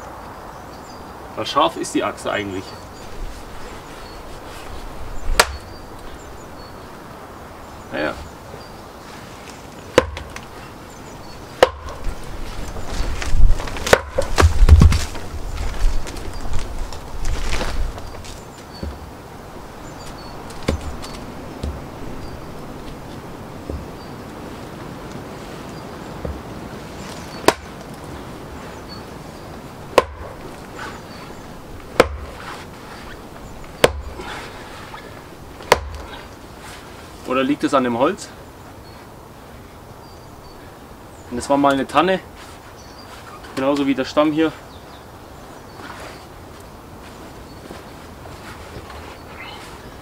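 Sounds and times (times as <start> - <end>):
wind rumbling on microphone: 2.7 - 36.6
axe striking wooden block: 5.4 - 5.7, 9.9 - 10.4, 11.6 - 12.0, 13.8 - 15.0, 27.4 - 27.7, 30.0 - 30.4, 32.0 - 32.3, 33.8 - 34.1, 35.6 - 36.1
heavy dull thuds: 11.6 - 16.7, 20.2 - 24.1, 26.2 - 26.5.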